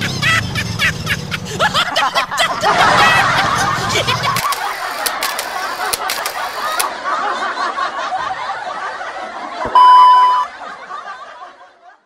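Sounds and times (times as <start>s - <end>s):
canned crowd laughter: 0.0s - 12.0s
sharp clicks: 4.3s - 6.9s
loud high beep: 9.7s - 10.5s.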